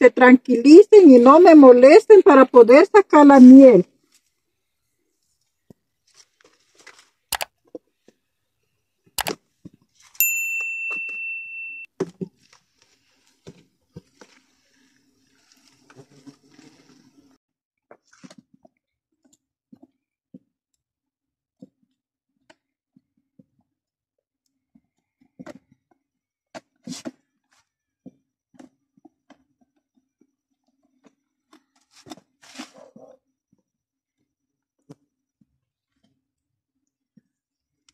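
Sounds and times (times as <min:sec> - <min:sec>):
ringing metal clink: 0:10.2 - 0:11.9.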